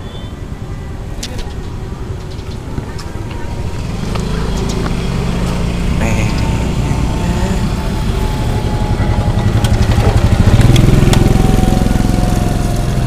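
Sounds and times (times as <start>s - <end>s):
motorcycle engine passing by: 3.3s - 13.0s.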